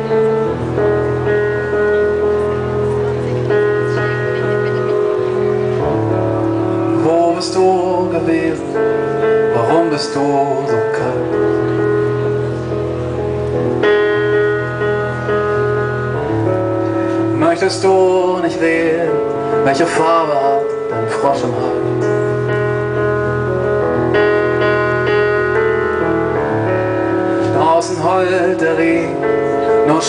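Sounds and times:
keyboard chords: 0.0s - 30.0s
man singing: 6.9s - 12.0s, 17.3s - 22.2s, 27.4s - 30.0s.

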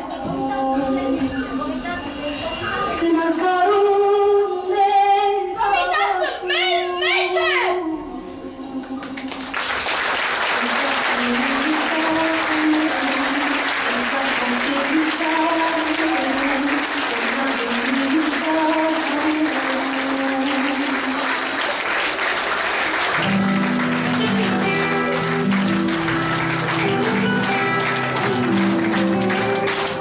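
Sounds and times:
audience applauding: 9.0s - 30.0s
music melody: 23.1s - 30.0s.

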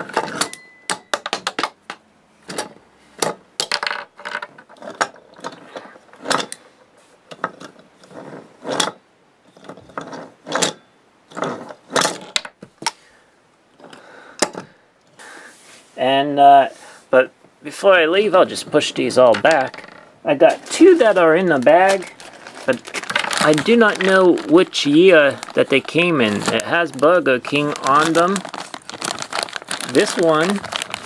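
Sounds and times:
plastic toys clicking and rattling: 2.5s - 7.8s, 20.6s - 31.0s.

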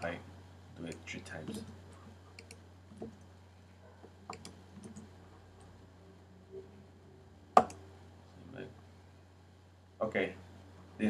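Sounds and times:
low steady hum: 0.0s - 11.0s
keyboard and mouse clicks: 2.4s - 2.6s, 4.3s - 5.1s, 7.6s - 7.8s.

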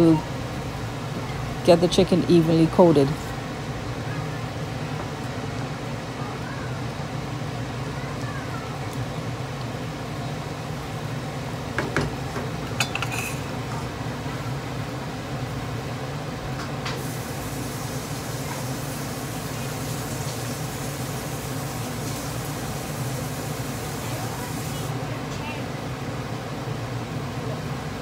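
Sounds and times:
chicken sizzling in a pan: 17.0s - 25.0s.

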